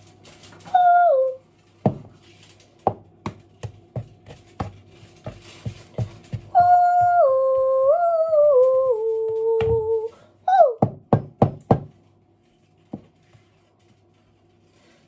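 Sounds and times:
person humming a tune: 0:00.8 - 0:01.4, 0:06.5 - 0:10.8.

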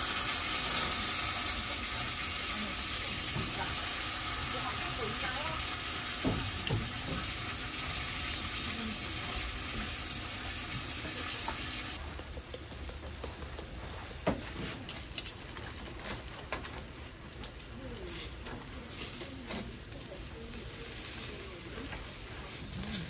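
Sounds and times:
food sizzling in a pan: 0:00.0 - 0:12.2, 0:17.8 - 0:23.0.

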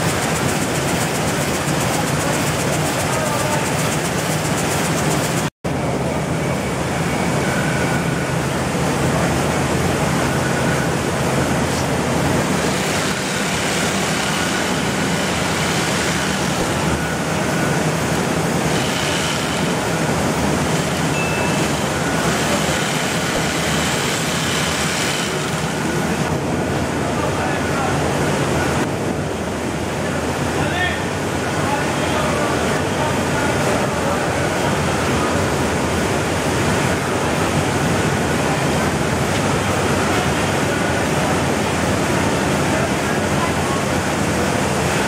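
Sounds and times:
rice mill machinery running: 0:00.0 - 0:28.8.

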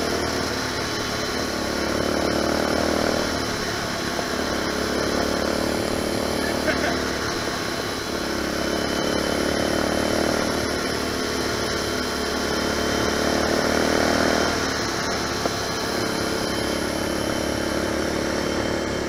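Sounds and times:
four-stroke motorbike engine running: 0:00.0 - 0:19.0
two-stroke dirt bike engine: 0:00.0 - 0:19.0.

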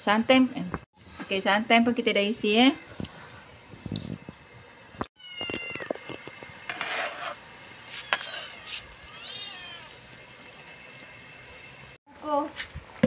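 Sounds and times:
high-pitched meow-like animal calls: 0:05.2 - 0:06.0, 0:07.9 - 0:10.0
brief scrape: 0:06.7 - 0:08.8.

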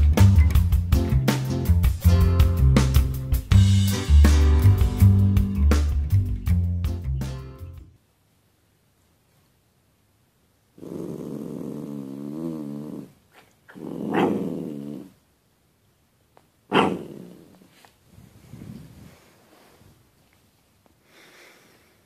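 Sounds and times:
small dog growling: 0:10.8 - 0:15.2, 0:16.7 - 0:17.9.

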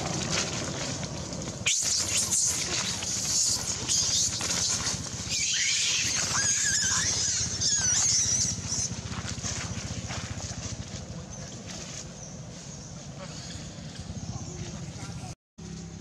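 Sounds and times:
steady low hum: 0:00.0 - 0:16.0
monkey screaming: 0:01.6 - 0:09.5.

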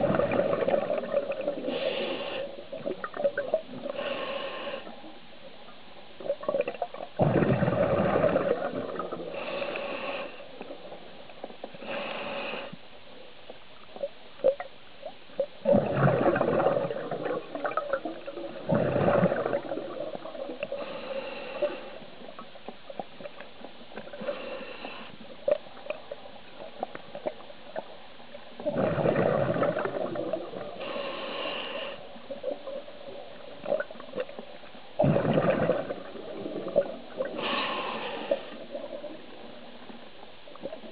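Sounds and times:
hissing inhalations: 0:03.9 - 0:05.0, 0:09.3 - 0:10.5, 0:11.8 - 0:12.8, 0:20.8 - 0:22.0, 0:30.8 - 0:32.1, 0:37.3 - 0:38.7.

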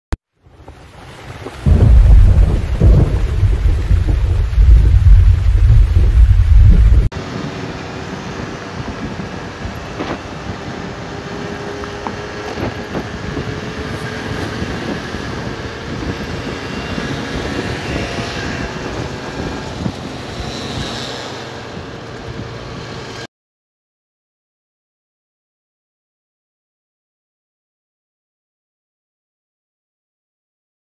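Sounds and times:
car engine and tyre noise: 0:00.4 - 0:23.3.

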